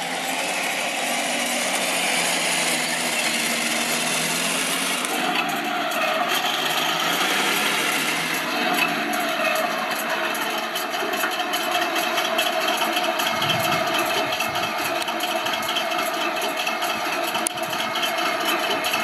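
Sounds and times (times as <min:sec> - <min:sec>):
toy tank engine sound idling: 0:00.0 - 0:19.0
deep rumble: 0:13.2 - 0:15.0.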